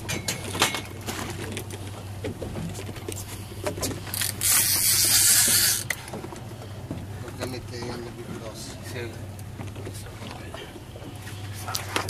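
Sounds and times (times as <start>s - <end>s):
steady low hum: 0.0s - 12.0s
fishing reel clicking: 4.1s - 6.0s.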